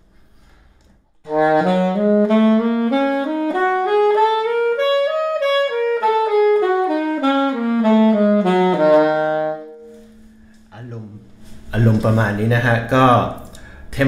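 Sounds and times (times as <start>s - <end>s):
alto saxophone playing scale: 1.2s - 10.7s.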